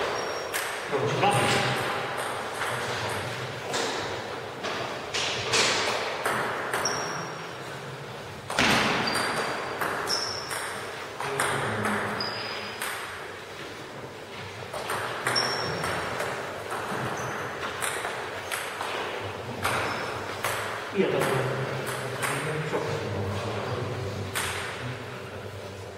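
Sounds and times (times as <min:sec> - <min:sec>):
table tennis ball hits: 0:00.0 - 0:07.4, 0:08.4 - 0:13.4, 0:14.7 - 0:22.5, 0:24.3 - 0:24.8.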